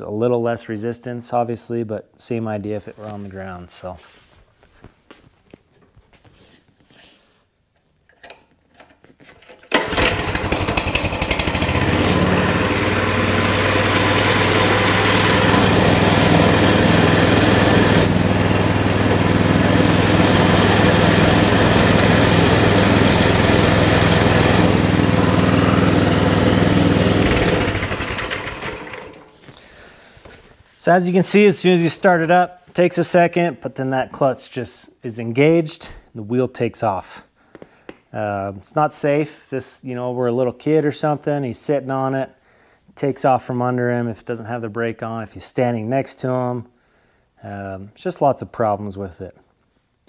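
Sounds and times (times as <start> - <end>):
pull-start cord: 8.1 - 29.4
mini bike engine idling fast: 9.8 - 29.2.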